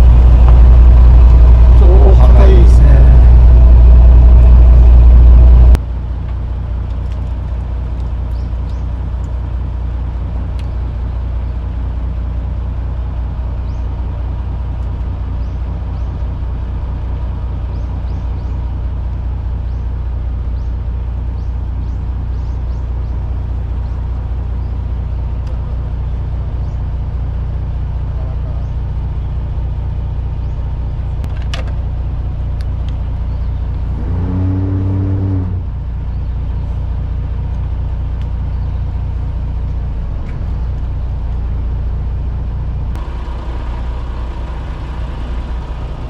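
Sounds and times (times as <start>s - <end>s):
boat engine hum: 0.0s - 46.0s.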